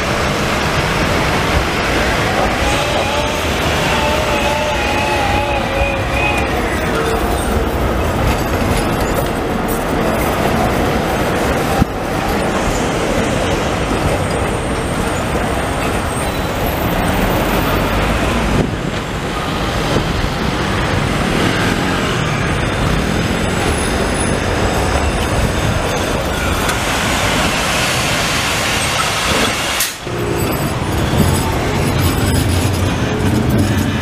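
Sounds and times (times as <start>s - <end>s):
cars passing: 0.0s - 34.0s
trams running over rails: 0.0s - 34.0s
motor scooters passing: 19.2s - 25.0s.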